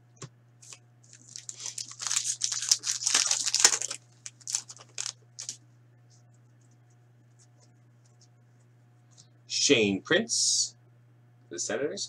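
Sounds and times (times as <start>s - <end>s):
foil wrapper tearing and crinkling: 1.0s - 5.6s.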